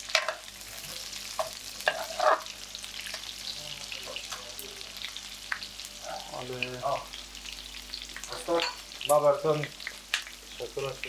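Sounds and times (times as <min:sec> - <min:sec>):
food sizzling in a frying pan: 0:00.0 - 0:11.0
metal ladle scraping a pan: 0:01.8 - 0:02.5.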